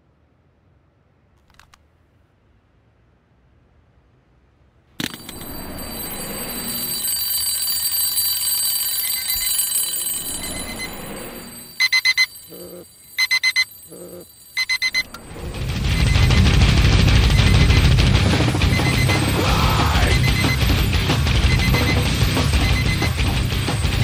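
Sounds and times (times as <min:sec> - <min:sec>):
smartphone alarm beeps: 0:05.0 - 0:16.4, 0:18.6 - 0:24.0
alarm clock bell ringing: 0:05.0 - 0:16.5, 0:18.6 - 0:24.0.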